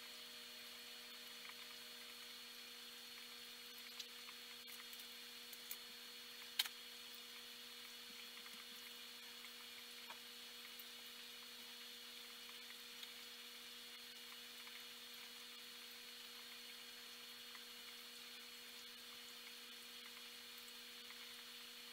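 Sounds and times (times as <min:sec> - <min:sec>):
aquarium equipment hum: 0:00.0 - 0:21.9
tiny ticks: 0:03.2 - 0:05.8, 0:06.4 - 0:10.9.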